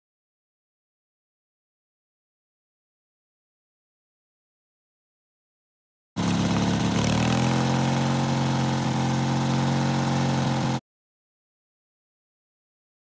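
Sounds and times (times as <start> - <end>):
riding mower engine running: 6.2 - 10.8.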